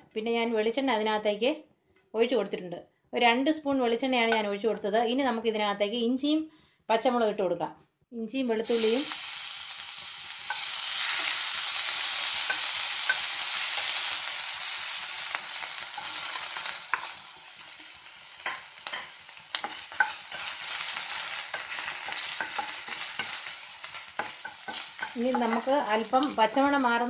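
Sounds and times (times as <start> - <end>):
food sizzling in hot oil: 8.6 - 27.0
spatula tapping and scraping pan: 18.4 - 26.4.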